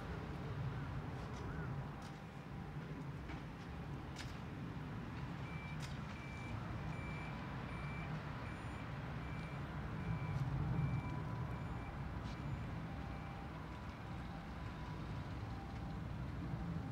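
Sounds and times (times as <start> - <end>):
reversing alarm beeping: 5.4 - 15.8.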